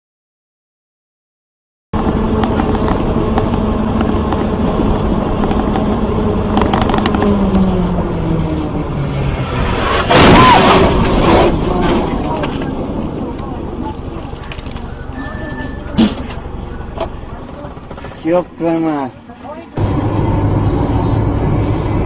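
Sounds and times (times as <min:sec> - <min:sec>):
road noise: 0:02.0 - 0:22.0
car engine hum: 0:19.8 - 0:22.0.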